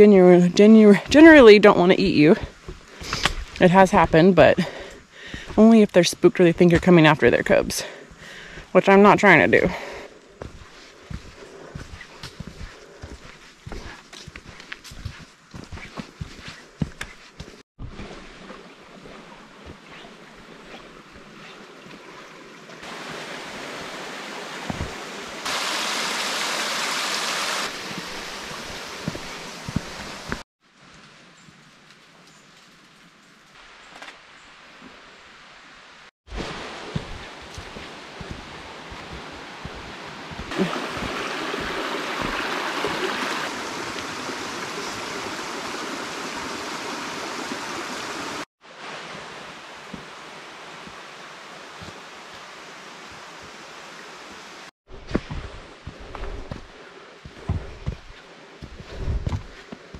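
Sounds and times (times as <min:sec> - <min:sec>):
quiet outdoor background: 0:00.0 - 0:59.9
creek water rushing: 0:18.2 - 0:30.4, 0:36.3 - 0:54.7.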